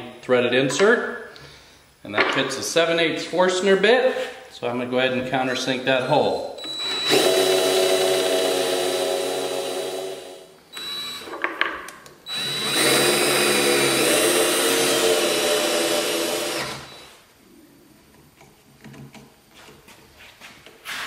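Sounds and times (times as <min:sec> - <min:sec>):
cordless drill boring into wood: 0:06.6 - 0:11.3, 0:12.3 - 0:17.2.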